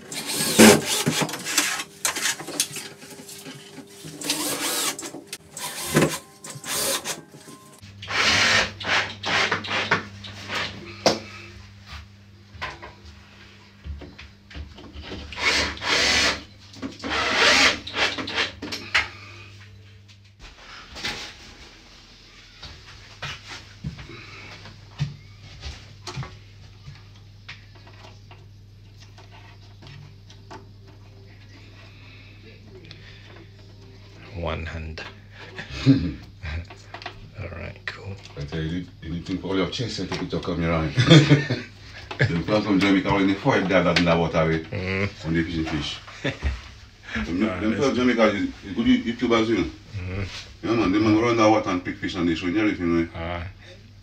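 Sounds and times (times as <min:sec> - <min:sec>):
cordless drill driving screws: 0:00.0 - 0:02.3, 0:04.2 - 0:07.2, 0:15.4 - 0:16.4, 0:17.0 - 0:18.5
steady low hum: 0:00.0 - 0:54.0.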